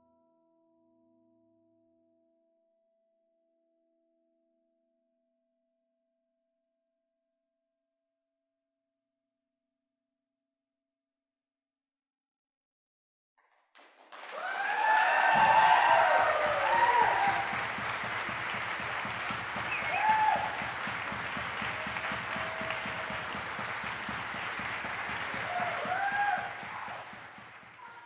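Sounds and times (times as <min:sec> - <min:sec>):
audience applauding: 0:13.7 - 0:28.0
cheers and whoops: 0:14.2 - 0:28.0.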